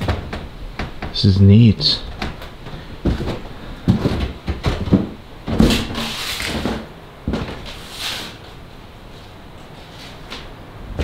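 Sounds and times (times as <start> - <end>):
footsteps on debris: 2.6 - 7.8.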